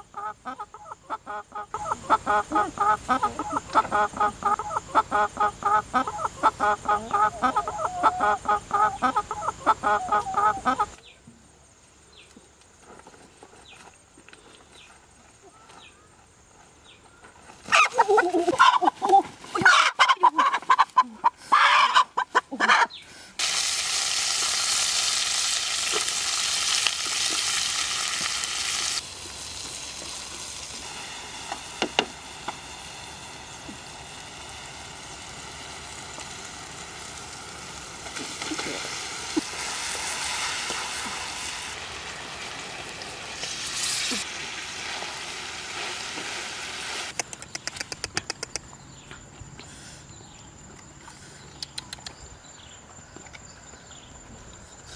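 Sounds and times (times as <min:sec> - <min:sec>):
hen squawking: 0:00.0 - 0:11.0, 0:17.7 - 0:23.0
food sizzling in a wok: 0:23.4 - 0:47.1.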